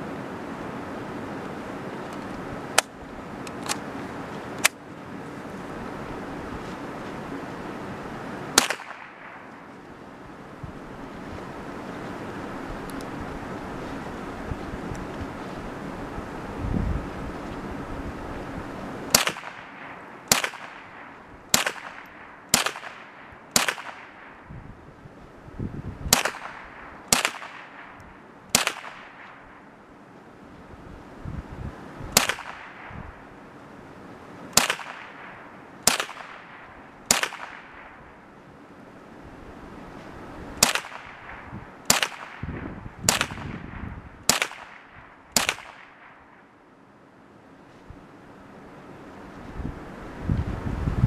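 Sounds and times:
rifle shots with echo: 8.6s - 9.5s, 19.1s - 24.5s, 26.1s - 29.7s, 32.2s - 33.1s, 34.6s - 38.2s, 40.6s - 46.5s.

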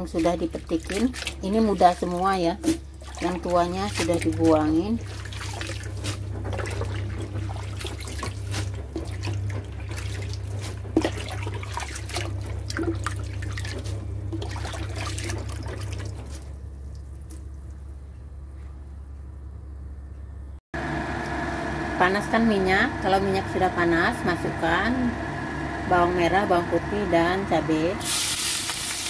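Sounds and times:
tap water running into basin: 0.0s - 17.8s.

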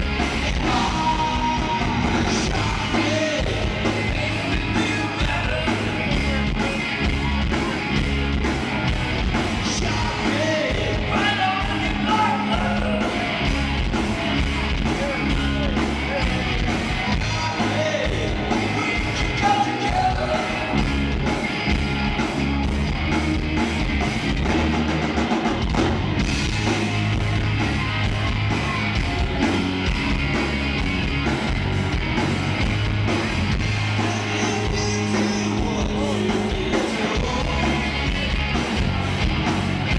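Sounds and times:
driving drum beat: 0.0s - 39.9s
electric guitars: 0.0s - 39.9s
person singing: 0.2s - 6.8s, 17.1s - 20.8s, 34.0s - 38.6s.

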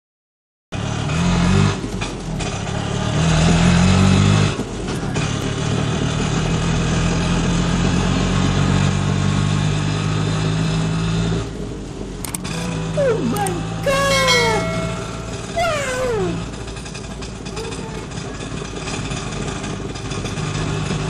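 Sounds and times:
auto-rickshaw engine running: 0.8s - 21.0s.

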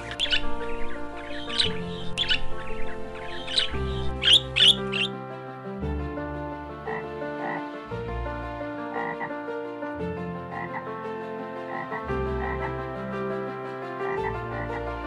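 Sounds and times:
frog croaking: 0.0s - 5.1s, 6.8s - 7.7s, 8.9s - 9.3s, 10.5s - 10.9s, 11.7s - 12.8s, 14.1s - 14.8s
background music: 0.0s - 15.0s.

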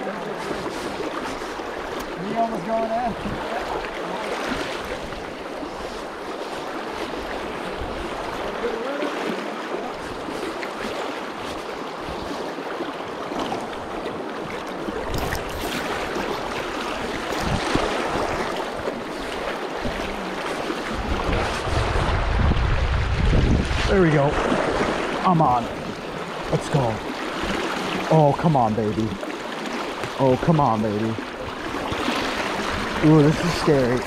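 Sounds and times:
river current rushing: 0.0s - 34.0s
wind rumble on microphone: 3.0s - 3.6s, 14.9s - 25.0s.

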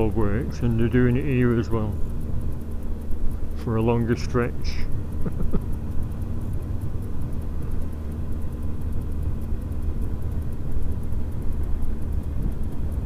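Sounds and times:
motorcycle engine low rumble: 0.0s - 13.0s.

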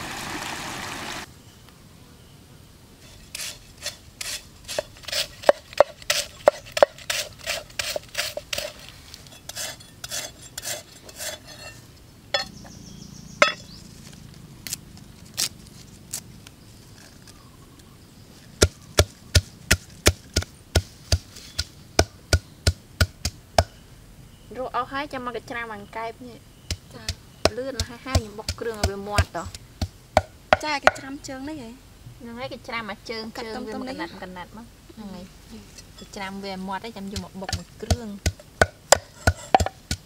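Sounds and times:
knife chopping on wooden board: 37.2s - 40.0s.

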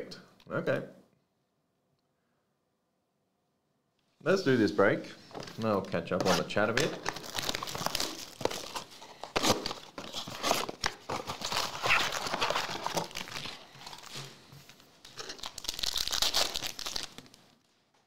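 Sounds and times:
foil packs crinkling: 5.3s - 17.6s
cardboard box tearing: 6.2s - 14.2s.

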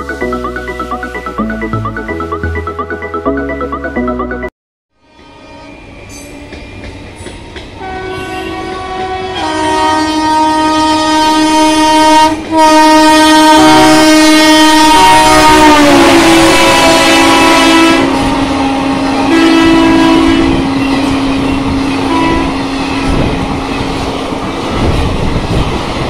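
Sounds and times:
train rumbling on track: 5.0s - 26.0s
train horn blast: 7.8s - 23.2s.

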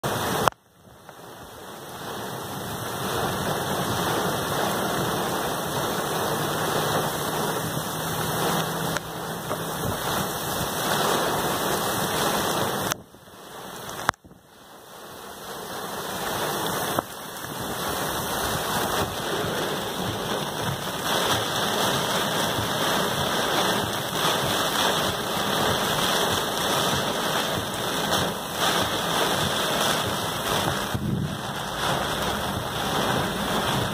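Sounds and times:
heavy rain pouring: 0.0s - 33.9s.

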